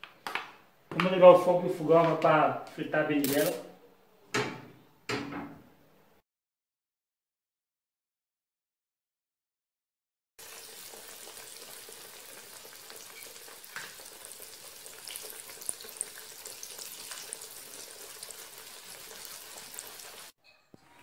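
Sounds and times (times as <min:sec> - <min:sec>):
eggplant frying in oil: 0:10.4 - 0:20.4
oil pops and crackles: 0:13.1 - 0:14.2.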